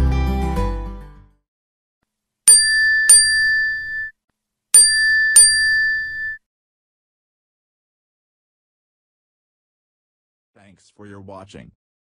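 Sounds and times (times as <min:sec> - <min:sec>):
bright ding chimes: 0:02.5 - 0:04.1, 0:04.8 - 0:06.4.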